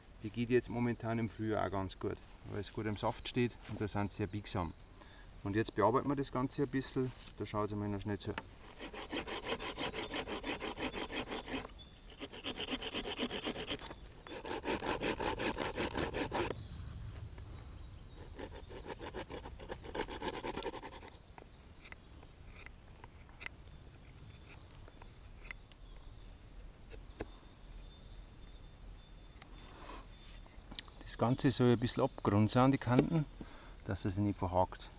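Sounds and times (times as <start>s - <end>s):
hand saw cutting a stick: 8.6s - 16.5s, 18.3s - 21.2s.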